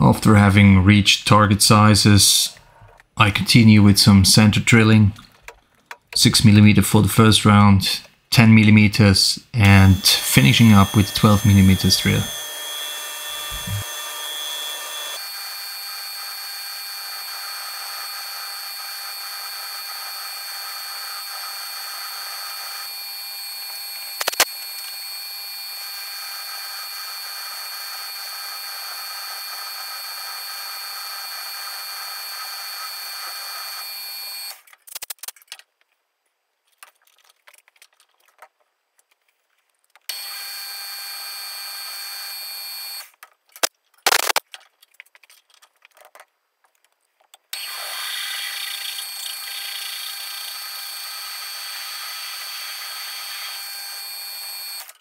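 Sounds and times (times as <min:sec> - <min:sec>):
drill boring into steel: 0:09.6 - 0:34.6, 0:40.1 - 0:43.1, 0:47.6 - 0:55.0
metal lathe whining: 0:09.6 - 0:34.6, 0:40.1 - 0:43.0, 0:47.6 - 0:54.9
sharp click: 0:24.2 - 0:24.5, 0:43.6 - 0:44.4.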